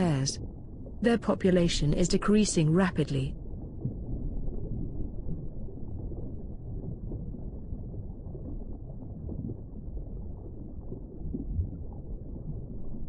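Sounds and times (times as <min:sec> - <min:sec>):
underwater rumble: 0:00.0 - 0:13.0.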